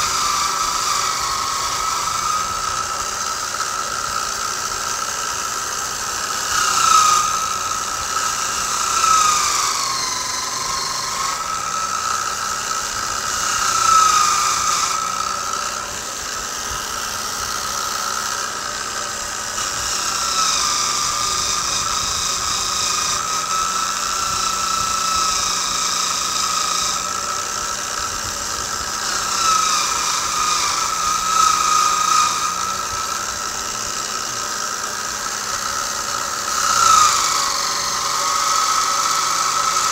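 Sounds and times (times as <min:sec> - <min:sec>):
electric motor whining: 0:00.0 - 0:39.9
wire wheel scratching metal: 0:00.0 - 0:39.9.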